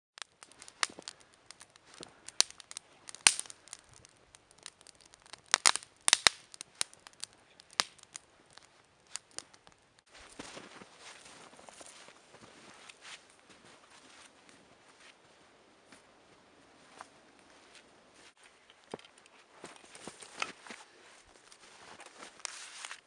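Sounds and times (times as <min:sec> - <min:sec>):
campfire crackling and popping: 0:00.2 - 0:13.4, 0:17.3 - 0:23.0
soft steady rustle: 0:06.6 - 0:15.6, 0:16.2 - 0:23.0.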